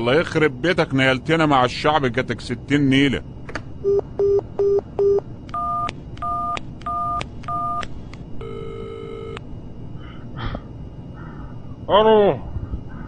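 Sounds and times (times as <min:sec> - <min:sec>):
touch-tone keypad beeps: 0:03.9 - 0:07.8
phone ringback tone: 0:08.4 - 0:09.4.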